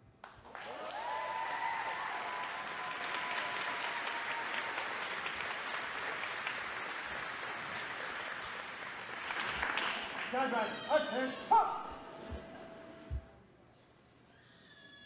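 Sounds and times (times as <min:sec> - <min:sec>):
crowd applauding in echoing hall: 0:00.0 - 0:11.3.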